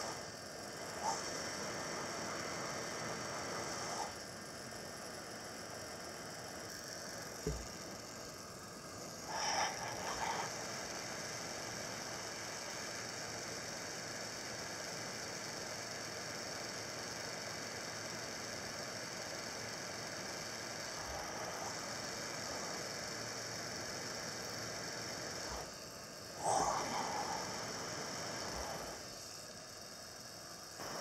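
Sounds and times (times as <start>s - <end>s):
heat gun blowing hot air: 0.0s - 4.2s, 24.5s - 29.7s.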